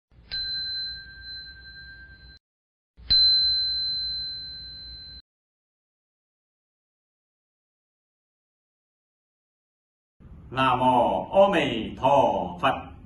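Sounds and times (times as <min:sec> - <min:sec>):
small bell ringing: 0:00.2 - 0:02.4, 0:03.0 - 0:05.2.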